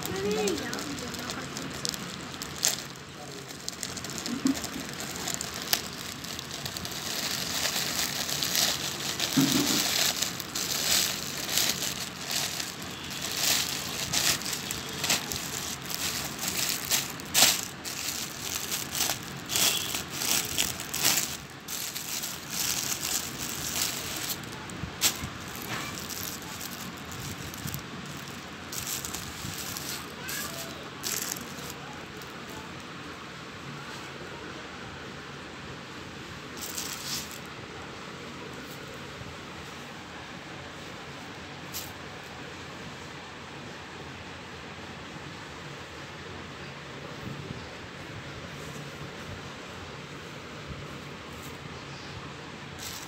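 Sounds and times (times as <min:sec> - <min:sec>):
plastic packaging crinkling: 0:00.0 - 0:32.7, 0:36.6 - 0:37.5, 0:52.8 - 0:53.0.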